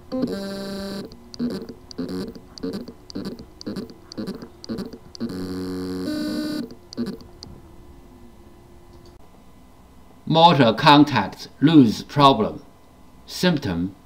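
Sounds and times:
hard drive motor buzzing: 0:00.0 - 0:07.6.

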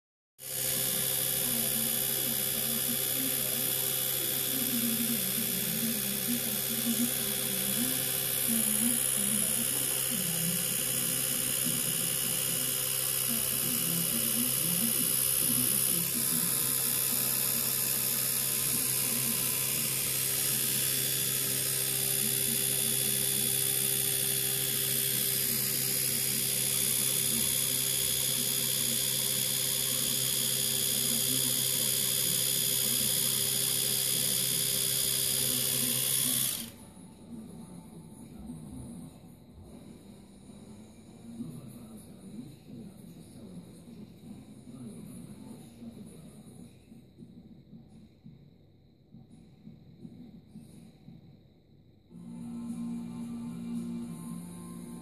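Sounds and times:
electric toothbrush buzzing: 0:00.4 - 0:36.9, 0:52.1 - 0:55.0.

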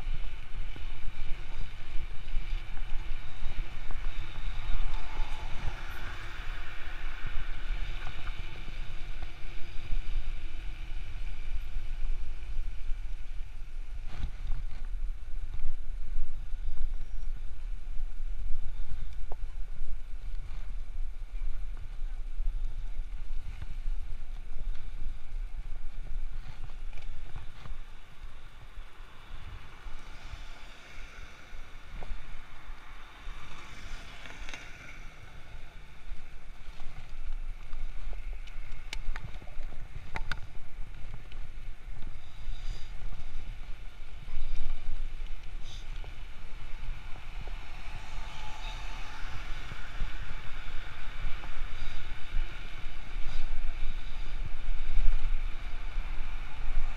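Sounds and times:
city traffic: 0:00.0 - 0:56.9
wind buffeting microphone: 0:00.0 - 0:56.9.

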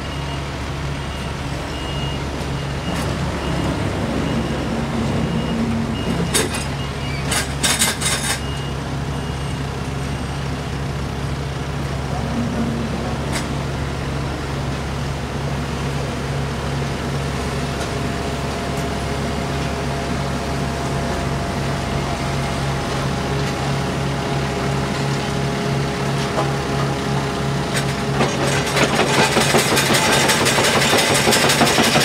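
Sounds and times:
reversing alarm beeps: 0:00.0 - 0:07.4, 0:08.0 - 0:10.6
heavy diesel engines running: 0:00.0 - 0:32.0
metal clanking and scraping: 0:05.2 - 0:08.5.

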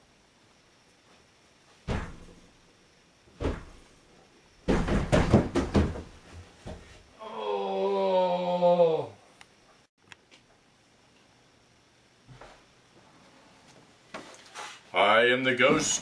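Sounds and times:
thumps on closet door: 0:01.8 - 0:02.4, 0:03.4 - 0:03.8, 0:04.6 - 0:06.9.

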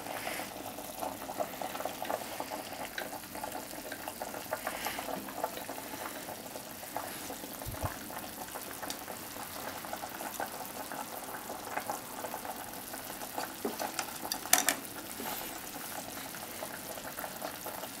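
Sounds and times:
broth simmering and bubbling: 0:00.0 - 0:18.0
chopsticks clicking: 0:13.8 - 0:14.8.

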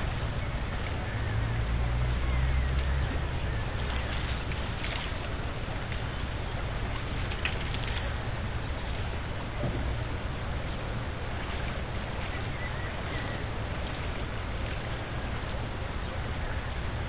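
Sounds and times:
river flowing over stones: 0:00.0 - 0:17.0
wind rumble on microphone: 0:00.0 - 0:17.0.

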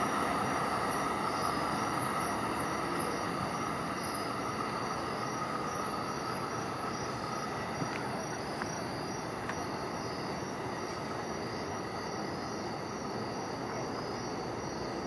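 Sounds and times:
insects chirping: 0:00.0 - 0:15.0
train rumbling: 0:00.0 - 0:15.0.

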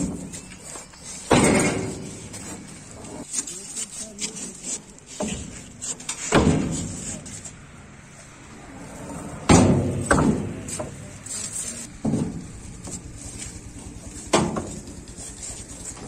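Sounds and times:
concrete poles clunking together: 0:00.0 - 0:03.5, 0:04.2 - 0:07.6, 0:09.4 - 0:13.5, 0:14.2 - 0:16.0.

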